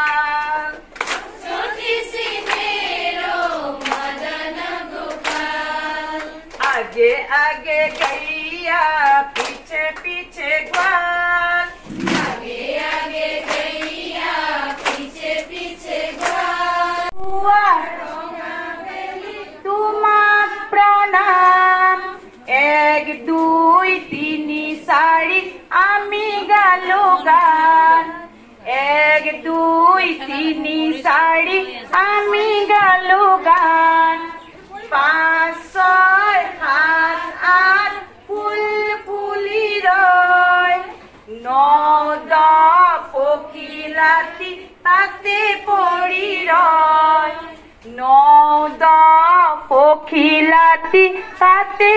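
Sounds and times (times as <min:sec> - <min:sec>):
hand clapping: 0:00.0 - 0:02.8, 0:03.4 - 0:04.4, 0:05.0 - 0:11.1, 0:11.9 - 0:16.5
women singing together: 0:00.0 - 0:51.9.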